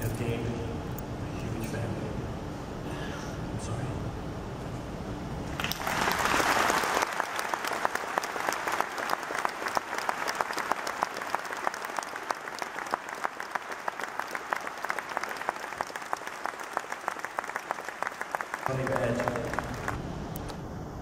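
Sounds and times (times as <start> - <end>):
audience applauding: 5.5 - 20.0.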